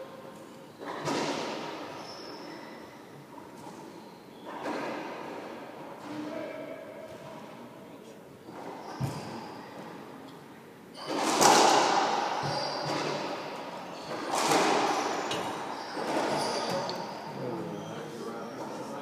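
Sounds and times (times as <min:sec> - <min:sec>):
racquetball hits echoing: 0:00.4 - 0:02.0, 0:03.5 - 0:07.6, 0:08.5 - 0:10.0, 0:11.0 - 0:17.4.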